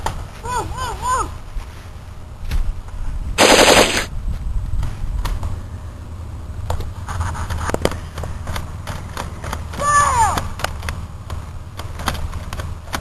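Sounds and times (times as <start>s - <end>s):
rapid machine-gun-like fire: 3.4s - 4.1s.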